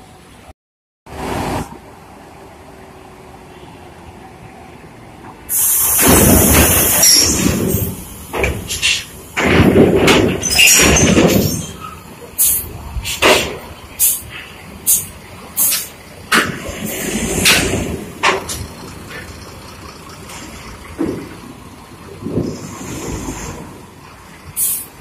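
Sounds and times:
air brakes and doors hissing: 0:05.5 - 0:18.6, 0:24.5 - 0:25.0.

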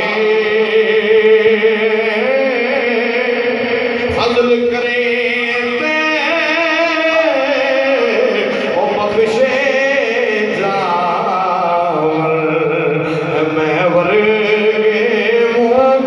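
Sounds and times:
man singing unaccompanied: 0:00.0 - 0:16.0.

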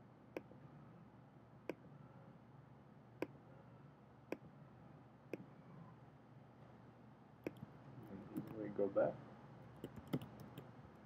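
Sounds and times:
faint low hum: 0:00.0 - 0:11.0
computer mouse clicks: 0:07.4 - 0:07.7, 0:09.8 - 0:10.7.

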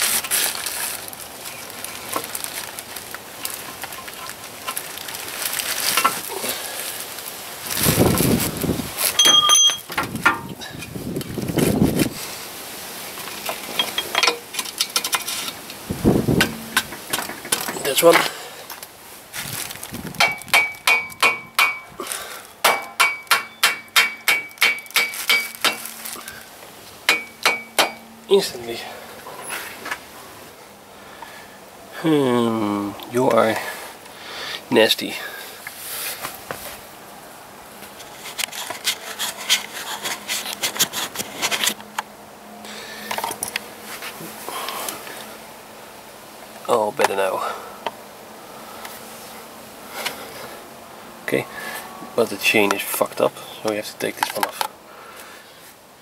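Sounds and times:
tissue rubbing camera lens: 0:00.0 - 0:01.1.

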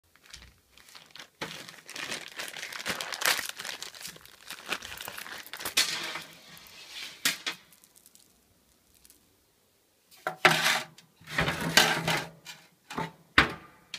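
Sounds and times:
plastic bag crinkling: 0:00.1 - 0:09.3.

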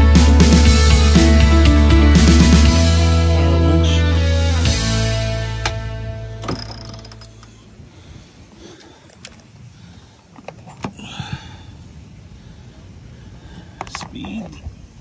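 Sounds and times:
background music: 0:00.0 - 0:06.8.

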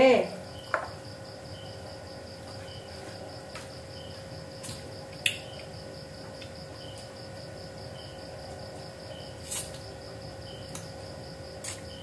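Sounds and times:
faint steady hum: 0:00.0 - 0:12.0
insect chirping: 0:00.0 - 0:12.0.

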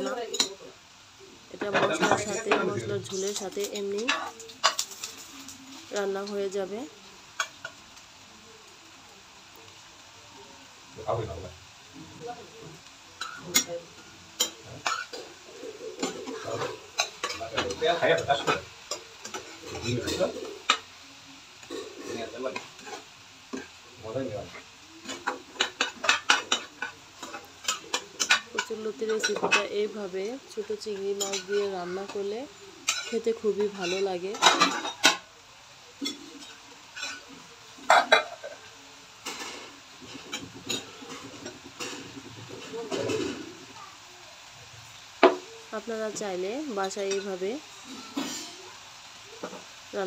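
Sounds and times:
metal utensils clinking on cookware: 0:00.0 - 0:00.7, 0:01.6 - 0:06.5, 0:13.2 - 0:15.3, 0:15.9 - 0:20.8, 0:21.7 - 0:35.3, 0:36.0 - 0:38.6, 0:39.2 - 0:43.6
metal spatula stirring in pan: 0:01.5 - 0:08.0, 0:12.1 - 0:21.0, 0:21.6 - 0:43.8, 0:46.2 - 0:50.0
metal knocks on pan: 0:45.2 - 0:45.4.

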